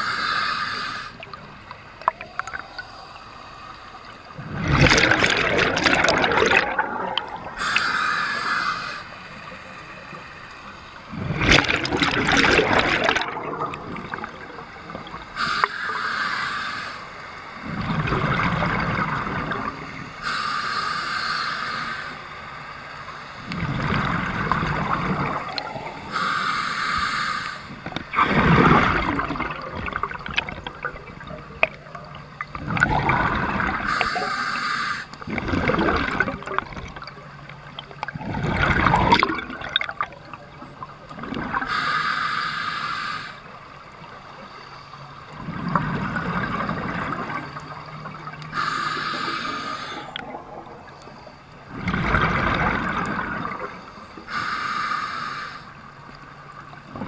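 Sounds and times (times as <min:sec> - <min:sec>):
regulator inhale hiss: 0:00.0 - 0:01.3, 0:07.6 - 0:10.7, 0:14.8 - 0:17.6, 0:20.1 - 0:23.0, 0:26.0 - 0:27.8, 0:33.8 - 0:35.2, 0:41.6 - 0:43.7, 0:48.5 - 0:50.2, 0:53.8 - 0:56.0
exhaled bubbles gurgling: 0:01.0 - 0:03.1, 0:03.9 - 0:09.1, 0:11.1 - 0:16.1, 0:17.6 - 0:20.2, 0:23.4 - 0:26.4, 0:27.7 - 0:42.0, 0:45.2 - 0:54.5.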